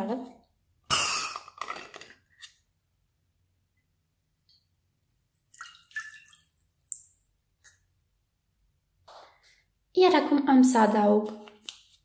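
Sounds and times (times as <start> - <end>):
water splashing into glass dish: 5.5 - 7.2.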